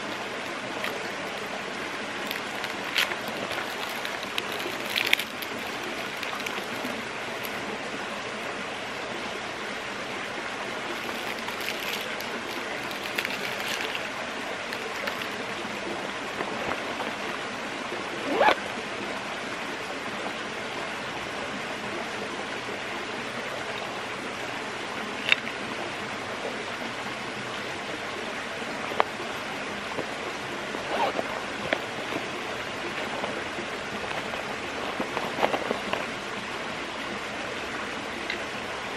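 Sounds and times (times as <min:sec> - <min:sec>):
flowing water rushing: 0:00.0 - 0:38.9
small objects clicking and tapping: 0:02.2 - 0:07.6, 0:10.9 - 0:14.1, 0:14.7 - 0:15.4.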